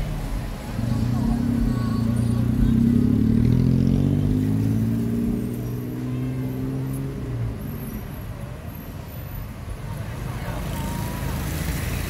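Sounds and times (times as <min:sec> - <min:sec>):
vehicle engine passing: 0:00.0 - 0:07.4
low street traffic rumble: 0:00.0 - 0:12.0.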